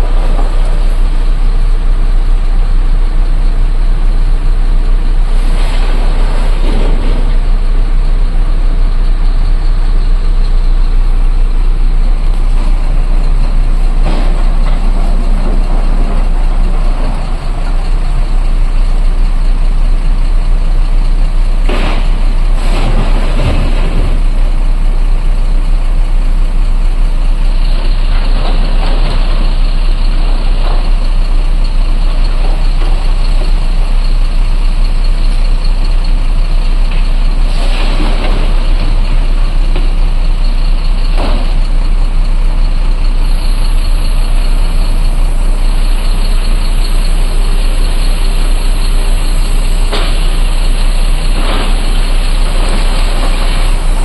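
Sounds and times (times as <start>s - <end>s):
heavy diesel engines rumbling: 0.0s - 54.0s.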